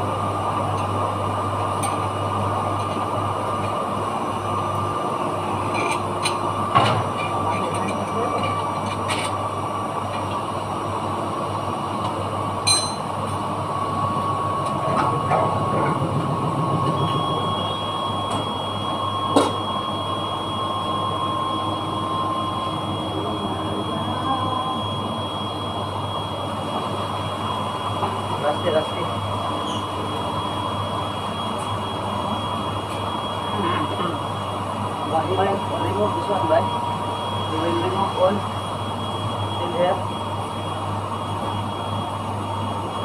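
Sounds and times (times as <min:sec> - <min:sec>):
machinery humming: 0:00.0 - 0:43.0.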